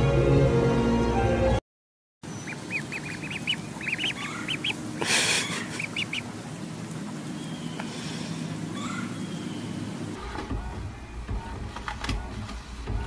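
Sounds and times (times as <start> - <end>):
music: 0.0 - 1.6, 10.2 - 13.0
ducklings peeping: 2.2 - 13.0.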